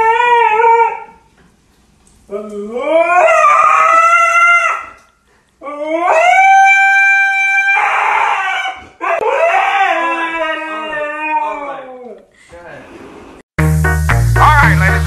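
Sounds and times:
dog howling: 2.3 - 5.0, 5.6 - 12.3.

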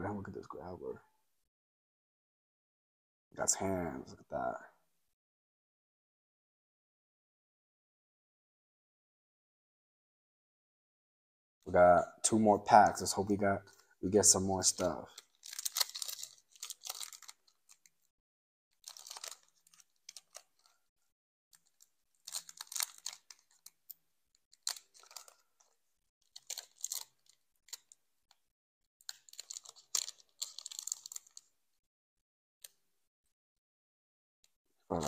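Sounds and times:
foil wrapper crinkling: 14.6 - 17.9, 18.8 - 20.8, 21.6 - 23.8, 24.5 - 28.0, 29.0 - 31.5.

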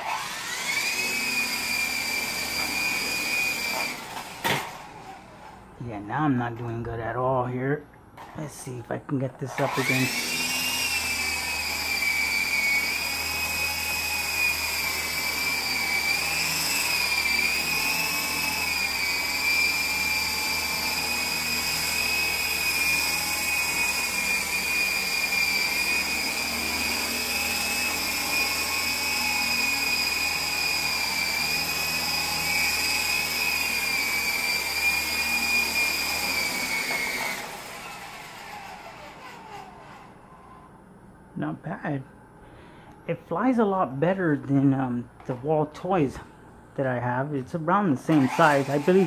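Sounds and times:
toy helicopter motor whine: 0.0 - 4.6, 9.6 - 40.2, 48.1 - 49.0.

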